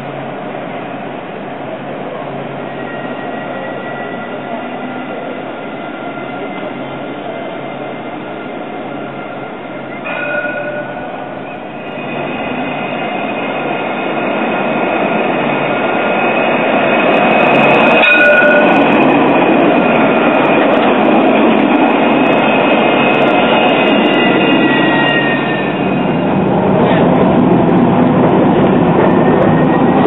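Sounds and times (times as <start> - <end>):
tram passing with rumble and whine: 0.0 - 30.0.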